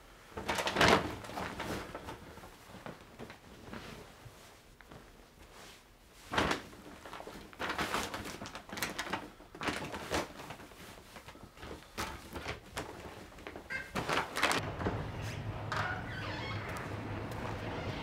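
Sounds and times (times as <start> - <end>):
shopping bag rustling: 6.2 - 15.4.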